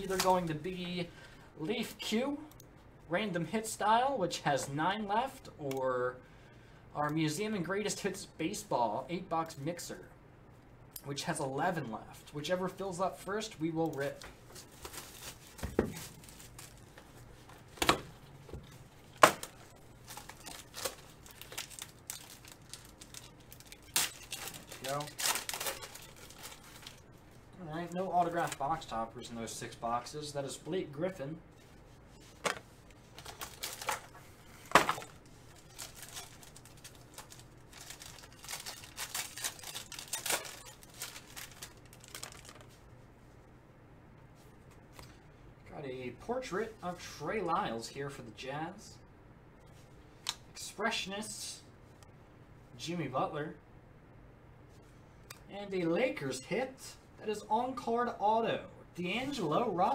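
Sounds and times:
plastic wrapping crinkling: 0:00.0 - 0:00.6, 0:13.8 - 0:17.8, 0:18.6 - 0:29.0, 0:32.2 - 0:42.9
foil pack ripping open: 0:19.3 - 0:27.0, 0:33.2 - 0:34.1, 0:34.7 - 0:42.7.

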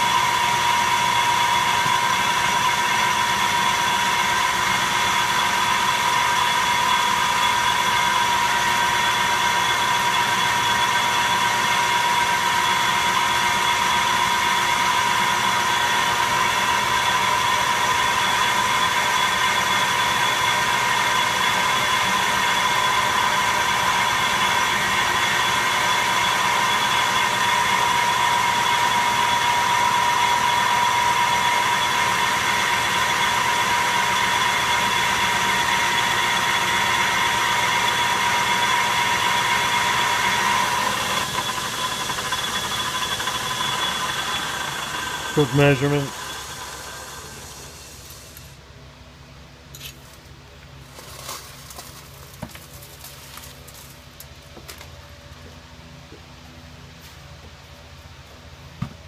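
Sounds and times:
metal lathe running: 0:00.0 - 0:48.5
high whine: 0:37.8 - 0:48.4.

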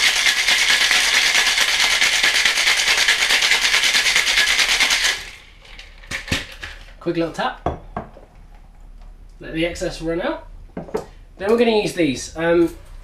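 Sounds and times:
ice rattling in cocktail shaker: 0:00.0 - 0:06.9.

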